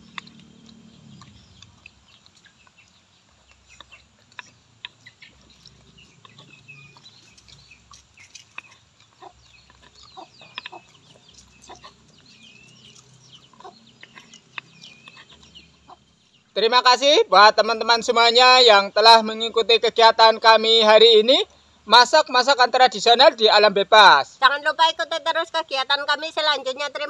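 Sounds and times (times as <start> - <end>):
chewing and lip smacks: 0.0 - 16.4
chickens clucking: 0.0 - 21.9.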